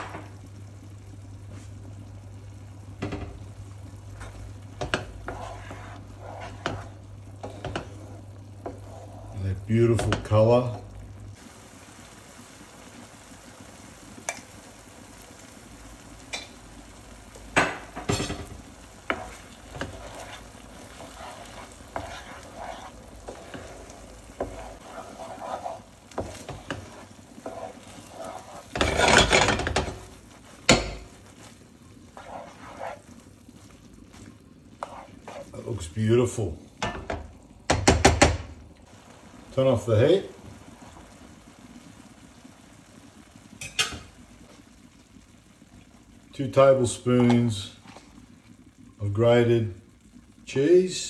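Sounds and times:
rice sizzling: 0.0 - 51.0
wooden spoon scraping a pan: 4.1 - 10.9, 17.0 - 35.9
scrape and rattle: 5.3 - 9.3, 24.4 - 30.0.

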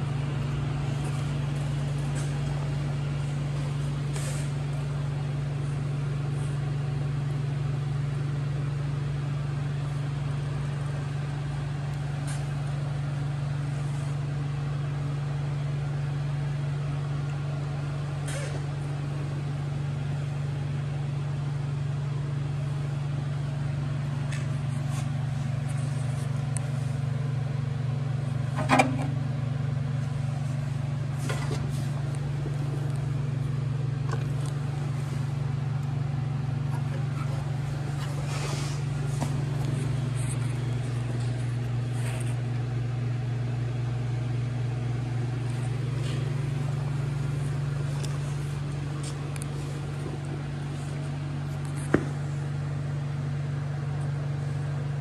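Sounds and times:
machine humming: 0.0 - 9.1.

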